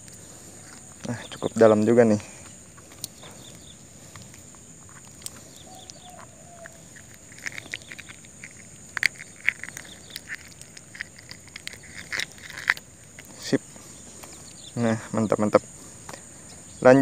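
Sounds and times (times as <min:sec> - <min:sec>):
small clicks and knocks: 0:04.1 - 0:13.3.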